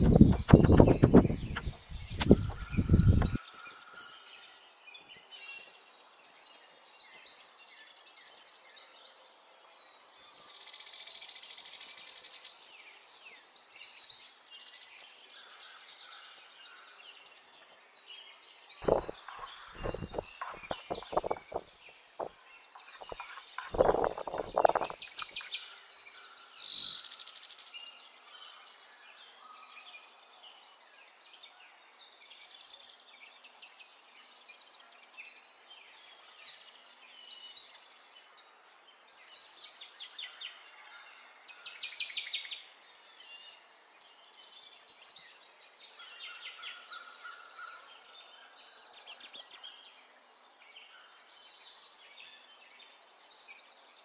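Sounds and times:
knife chopping on wooden board: 0:00.0 - 0:03.4, 0:18.8 - 0:21.6
birds chirping and singing: 0:00.0 - 0:04.1, 0:18.8 - 0:25.7.

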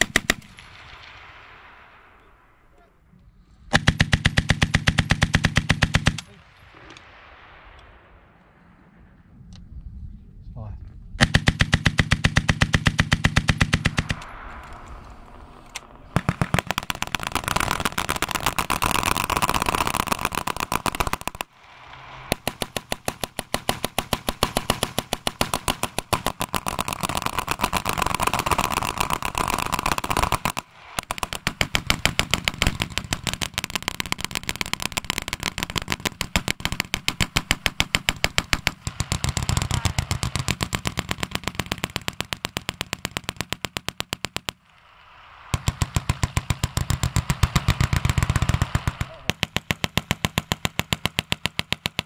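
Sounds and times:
machine guns firing bursts: 0:00.0 - 0:01.0, 0:03.7 - 0:06.4, 0:11.2 - 0:14.2, 0:16.1 - 0:44.7, 0:45.5 - 0:52.0.

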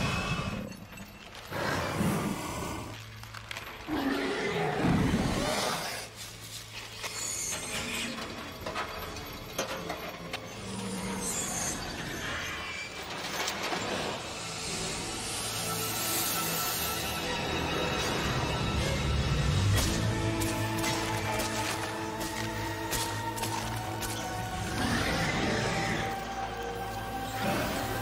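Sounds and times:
chains clanking and ratcheting: 0:07.5 - 0:11.9.

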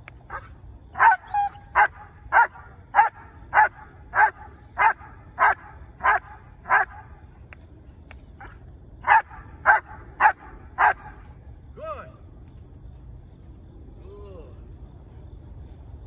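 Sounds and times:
dog barking: 0:00.3 - 0:07.1, 0:08.4 - 0:11.2.

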